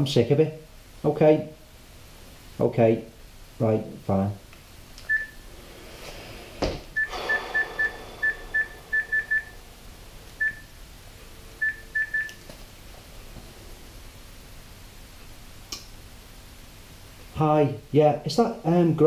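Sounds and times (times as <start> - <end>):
thump: 6.6 - 7.9
phone keypad beeps: 11.6 - 12.4.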